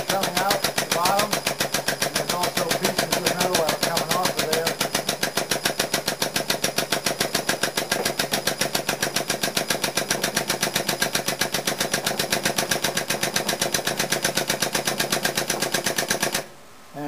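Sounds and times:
press pump rattling: 0:00.0 - 0:16.5.

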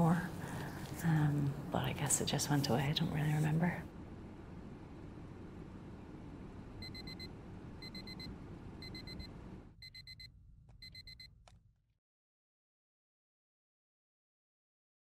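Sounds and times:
low room hum: 0:00.0 - 0:11.8
digital alarm clock beeping: 0:06.8 - 0:11.3.

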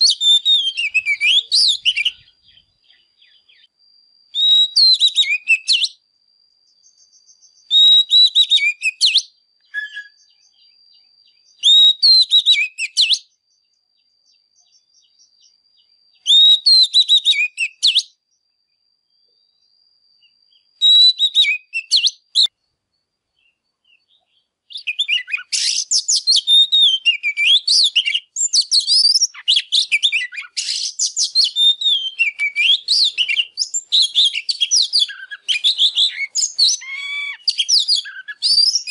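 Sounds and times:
bird singing whistled phrases: 0:00.0 - 0:03.7, 0:04.3 - 0:06.0, 0:06.7 - 0:13.4, 0:14.0 - 0:18.2, 0:19.4 - 0:22.6, 0:23.4 - 0:38.9.

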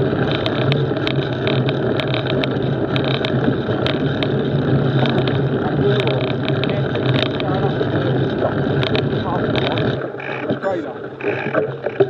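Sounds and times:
bike tyre rolling on gravel: 0:00.0 - 0:12.0
stones and bike rattling: 0:00.0 - 0:12.0.

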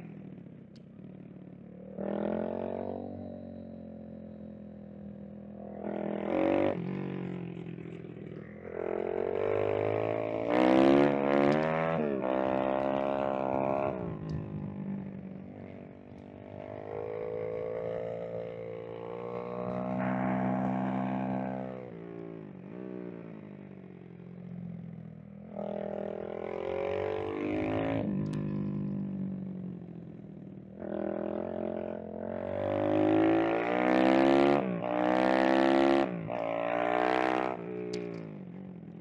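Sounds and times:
motorbike engine revving: 0:01.8 - 0:24.1.

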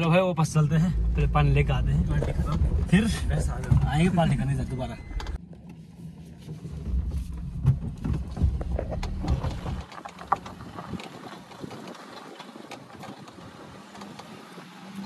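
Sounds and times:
car engine low hum: 0:00.0 - 0:15.0
knocks and rattles: 0:06.9 - 0:14.3.

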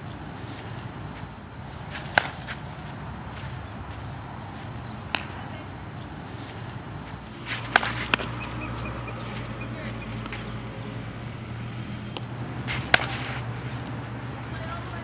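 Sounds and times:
outdoor background noise: 0:00.0 - 0:15.0
bat hitting ball: 0:07.5 - 0:08.4, 0:12.1 - 0:13.4.

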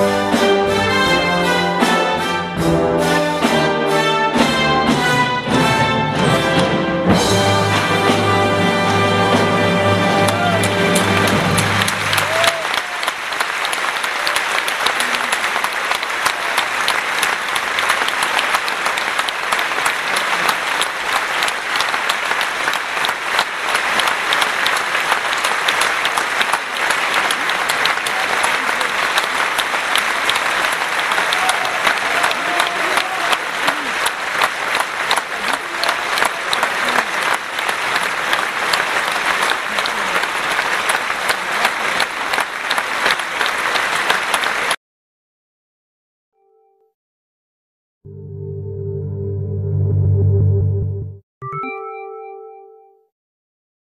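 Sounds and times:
large audience applauding: 0:07.1 - 0:44.8.

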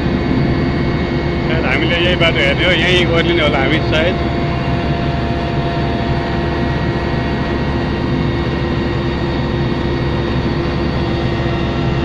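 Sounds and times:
helicopter engine and rotor drone: 0:00.0 - 0:12.0.

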